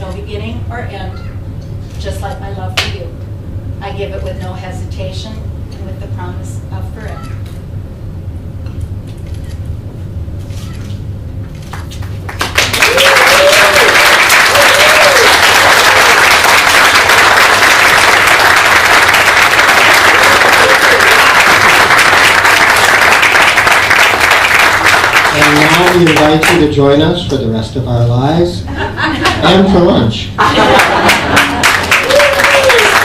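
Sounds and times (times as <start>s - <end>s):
audience applause: 11.6s - 26.8s, 30.6s - 33.0s.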